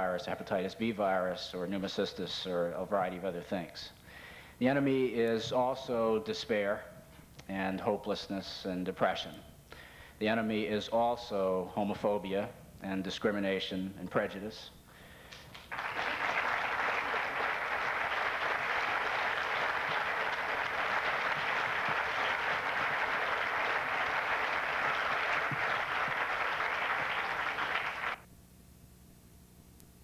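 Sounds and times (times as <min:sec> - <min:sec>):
audience applauding: 0:15.3 - 0:28.2.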